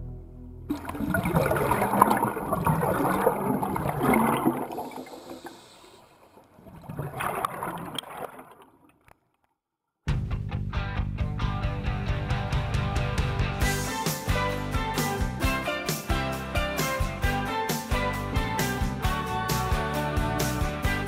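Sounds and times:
background music: 0.0 - 1.0, 10.1 - 21.0
underwater bubbles gurgling: 0.7 - 9.1.

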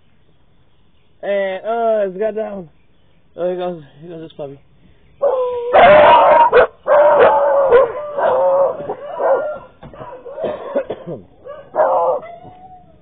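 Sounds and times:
puppy howling and yelping: 5.2 - 13.0.

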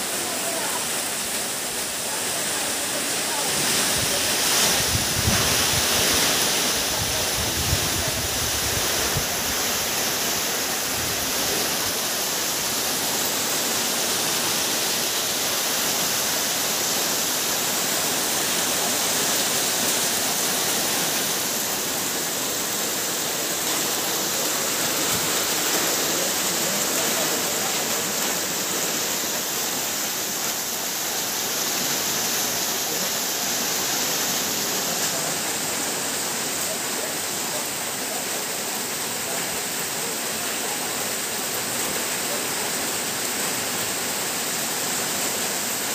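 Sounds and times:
heavy rain on leaves: 0.0 - 45.9
wind rumble on microphone: 4.8 - 6.1, 7.0 - 9.4.

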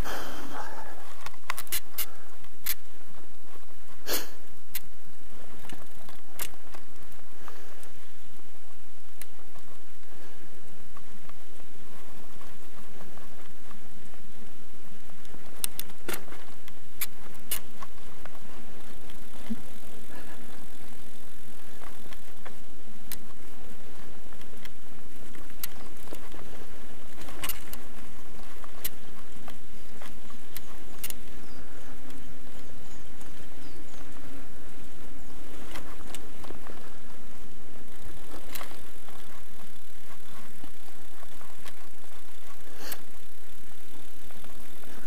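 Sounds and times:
bicycle tyre riding noise: 0.0 - 45.0.

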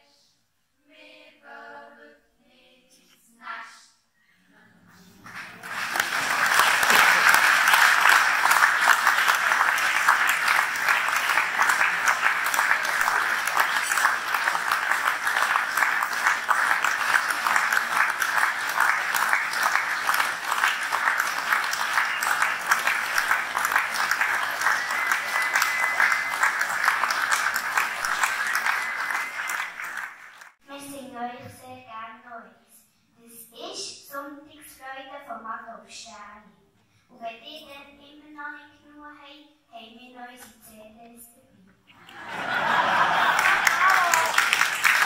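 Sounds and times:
audience applauding: 5.2 - 30.6, 42.0 - 45.0.

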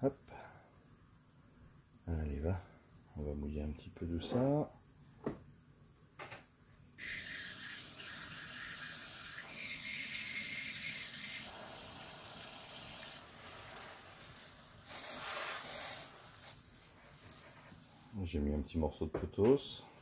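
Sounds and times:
hiss of fine water spray: 7.0 - 18.2.

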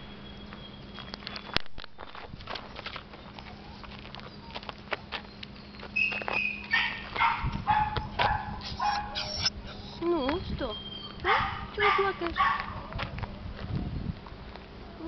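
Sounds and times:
light footsteps on gravel: 0.4 - 15.0
small dog whining and yipping: 5.6 - 12.6.

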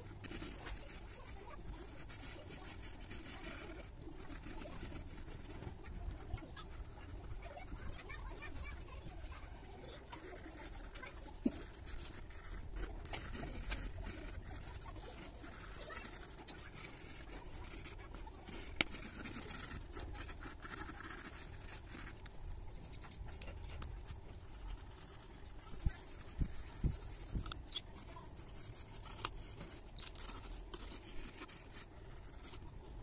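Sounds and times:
pencil scratching on paper: 0.0 - 33.0.

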